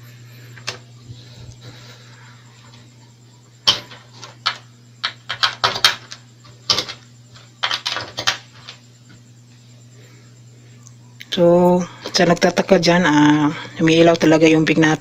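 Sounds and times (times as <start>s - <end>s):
low hum: 0.0s - 5.0s.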